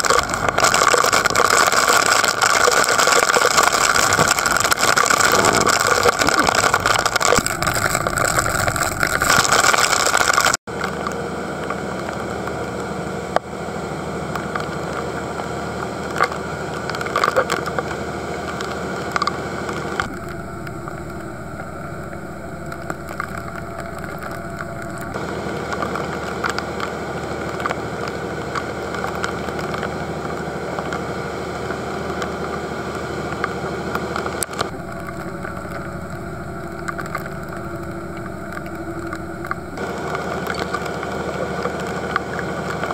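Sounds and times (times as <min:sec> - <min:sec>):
waves spraying along hull: 0:00.0 - 0:10.6
boat engine running: 0:00.0 - 0:42.9.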